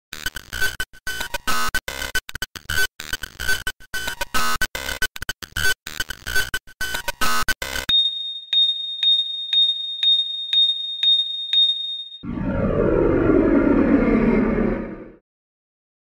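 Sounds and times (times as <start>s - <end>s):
short pings: 7.9s - 12.2s
steady high tone: 7.9s - 15.2s.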